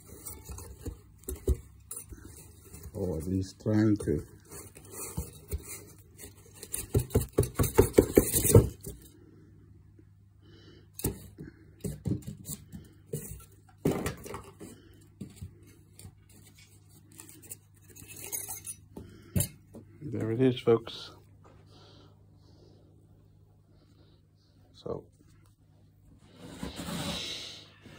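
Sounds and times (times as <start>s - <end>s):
cardboard and foam rustling: 0.0s - 9.2s, 11.1s - 18.4s, 26.1s - 27.9s.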